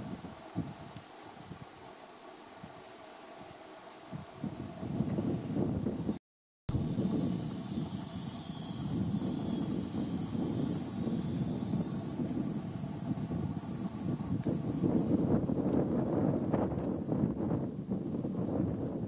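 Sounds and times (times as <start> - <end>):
insects trilling: 0.0 - 19.0.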